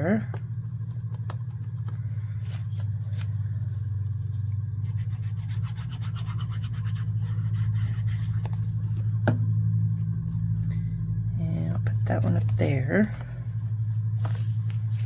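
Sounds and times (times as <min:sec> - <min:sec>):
steady low hum: 0:00.0 - 0:15.0
paper handling: 0:00.7 - 0:04.7, 0:12.2 - 0:15.0.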